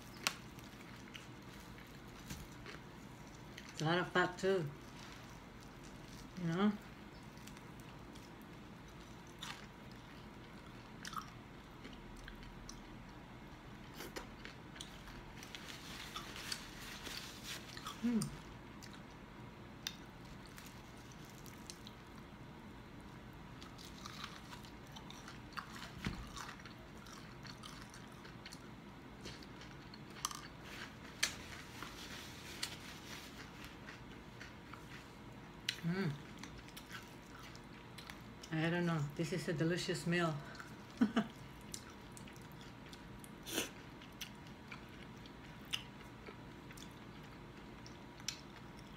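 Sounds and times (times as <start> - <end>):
crispy skin crackling: 0.0 - 11.2
chewing and crunching: 0.0 - 39.1, 40.4 - 48.9.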